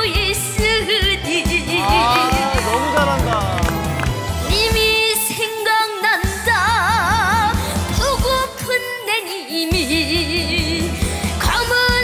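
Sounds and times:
band backing track: 0:00.0 - 0:12.0.

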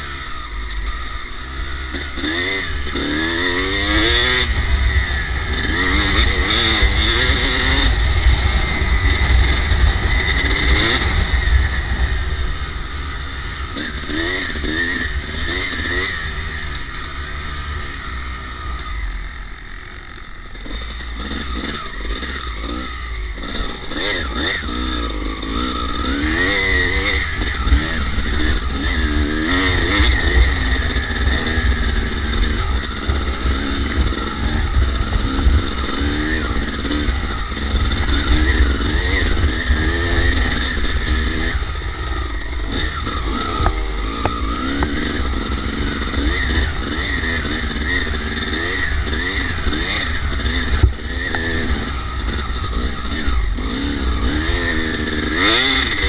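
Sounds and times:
dirt bike engine revving: 0:00.0 - 0:56.0
low rumble: 0:04.1 - 0:13.8.

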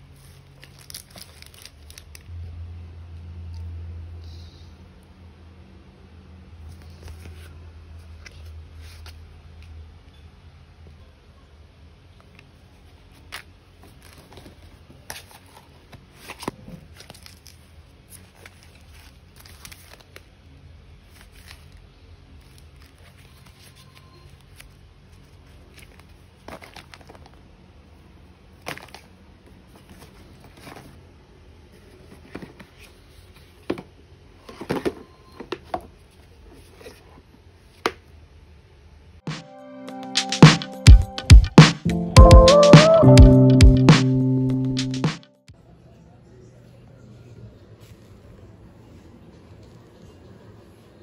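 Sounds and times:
low room hum: 0:00.0 - 0:39.2
plastic packaging crinkling: 0:00.2 - 0:02.3, 0:13.2 - 0:20.4.

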